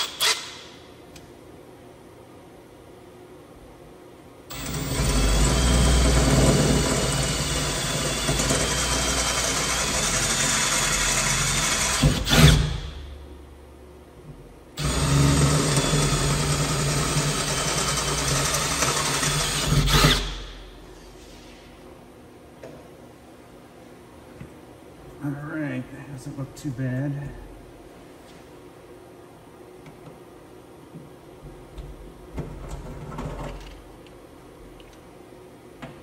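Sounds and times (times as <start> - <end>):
cordless drill boring sheet metal: 4.5 - 13.0, 14.8 - 20.5.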